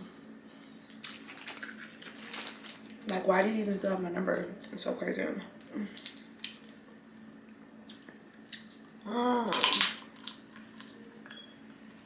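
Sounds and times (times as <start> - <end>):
person humming: 9.0 - 9.6.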